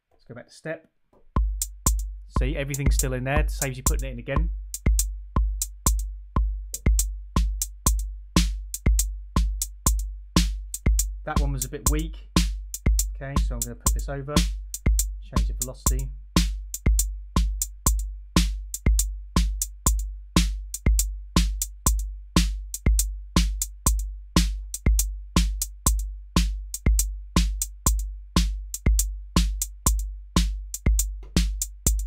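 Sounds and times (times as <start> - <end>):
hi-hat ticks: 1.4 - 32.0
kick drum hits: 28.9 - 32.0.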